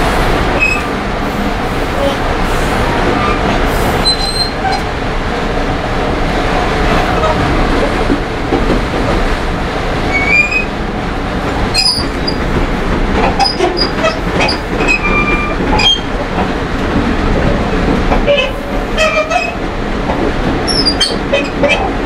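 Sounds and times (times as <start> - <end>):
train wheels rumbling on track: 0.0 - 22.0
high-pitched wheel squeals: 0.6 - 0.9, 4.0 - 4.8, 10.1 - 10.7
sharp clicks from rails: 6.2 - 22.0.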